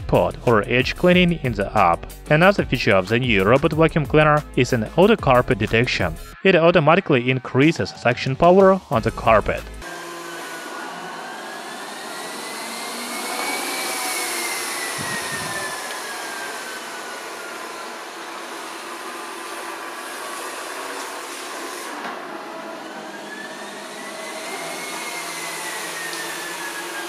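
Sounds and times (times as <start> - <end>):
robot vacuum suction whine: 9.8 - 27.0.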